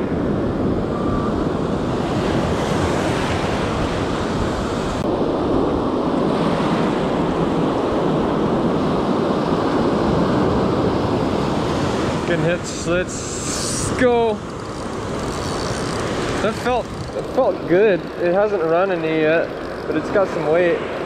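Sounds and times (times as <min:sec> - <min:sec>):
wind buffeting microphone: 0:00.0 - 0:21.0
waves breaking: 0:05.8 - 0:21.0.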